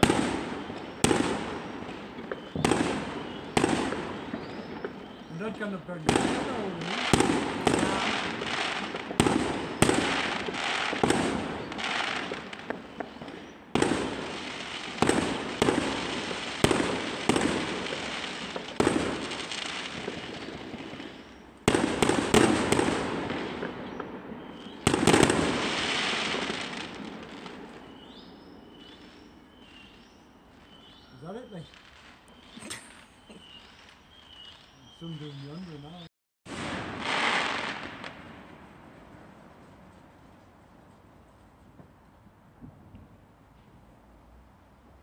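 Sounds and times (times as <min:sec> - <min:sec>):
firework shells bursting: 0:00.0 - 0:31.0.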